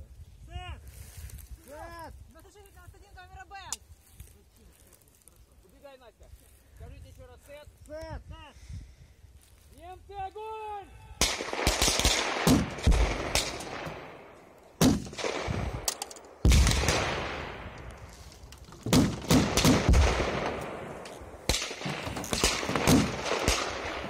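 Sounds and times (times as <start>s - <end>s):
pyrotechnic bangs with echo: 11.2s - 17.9s, 18.8s - 24.0s.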